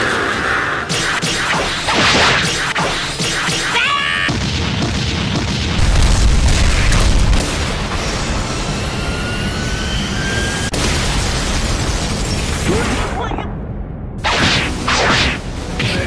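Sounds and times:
deep booming rumble: 4.3 - 8.4.

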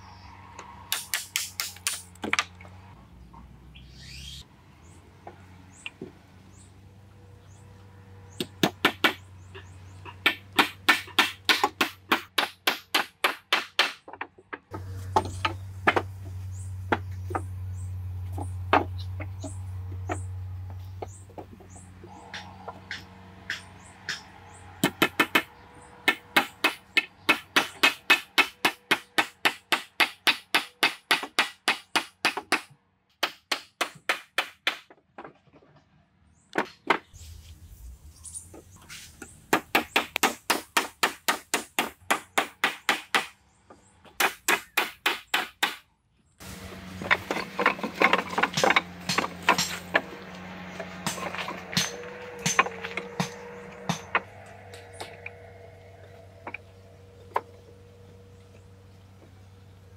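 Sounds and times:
hammer knocking wooden poles: 8.4 - 16.1, 21.0 - 35.0, 39.5 - 45.8, 46.7 - 55.8.

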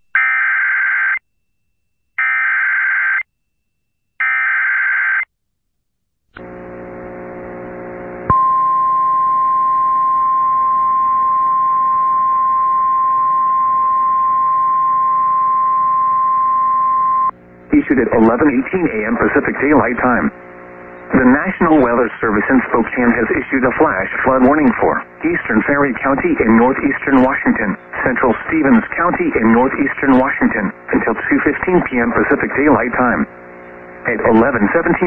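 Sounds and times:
low buzzing hum: 6.4 - 35.0.

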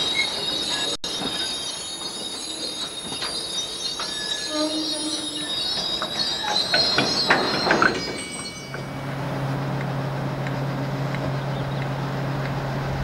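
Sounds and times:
wagon wheel squeal: 0.0 - 9.3
diesel locomotive engine drone: 0.0 - 13.0
wagons clanking: 0.0 - 13.0.

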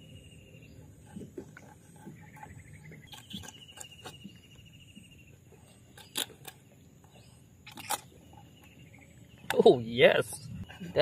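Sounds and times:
faint insect trill: 0.0 - 11.0.

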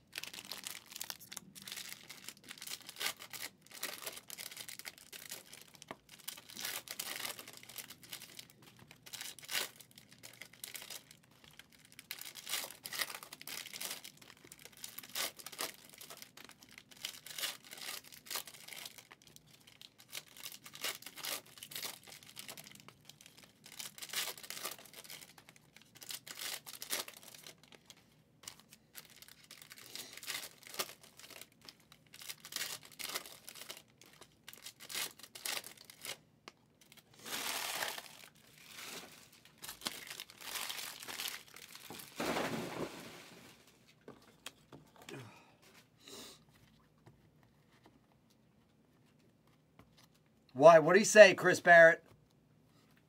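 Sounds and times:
card pack wrappers ripping: 0.1 - 27.8, 28.4 - 36.2, 36.8 - 43.5.

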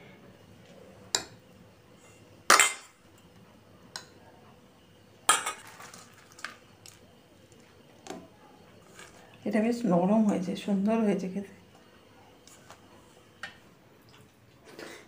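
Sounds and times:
ladle clinking on steel bowls: 5.3 - 6.1.

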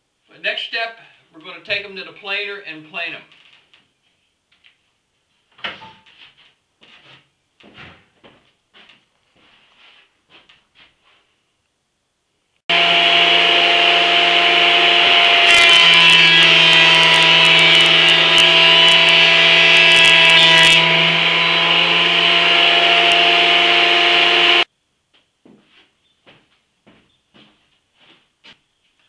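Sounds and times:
planer knives cutting wood: 12.7 - 24.7
thickness planer motor humming: 12.7 - 24.7.

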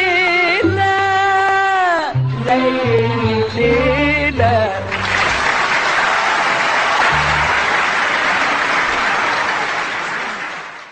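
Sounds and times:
song with orchestra: 0.5 - 5.3
audience applauding: 4.9 - 10.9.

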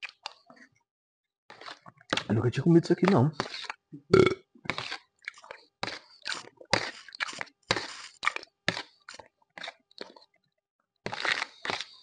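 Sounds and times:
spoon scraping plastic bowl: 1.5 - 3.9, 4.6 - 10.3, 11.0 - 12.0
wet chewing smacks: 3.4 - 10.3.

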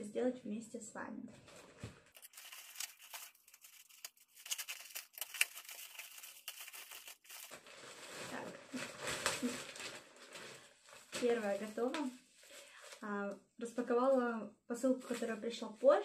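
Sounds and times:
plastic bag rustling: 1.4 - 13.0
plastic mailer bag tearing: 2.1 - 11.9.

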